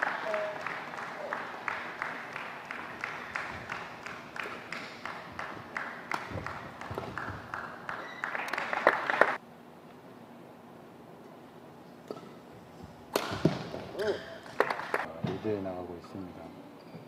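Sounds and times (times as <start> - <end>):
spectators clapping in rhythm: 0.0 - 9.4, 14.6 - 15.1
racket hitting shuttlecock: 13.1 - 14.9.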